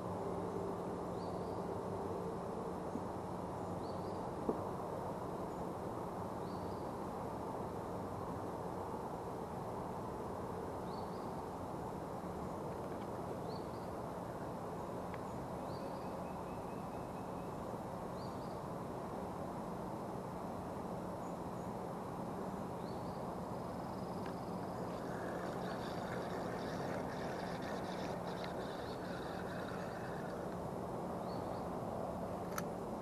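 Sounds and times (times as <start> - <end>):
low rush of background noise: 0.0 - 33.0
spinning reel clicking and rattling: 24.7 - 30.6.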